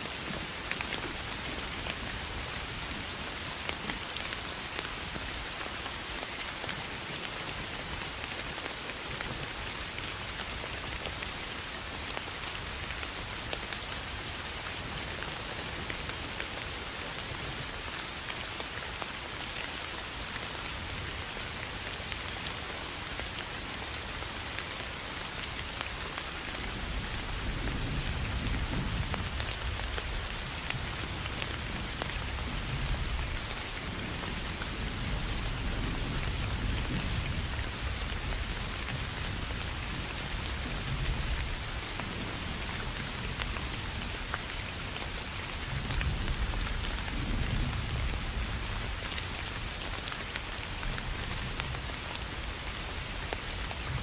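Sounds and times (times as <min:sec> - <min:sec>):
steady rain hiss: 0:00.0 - 0:54.0
low rolling thunder: 0:39.3 - 0:49.0.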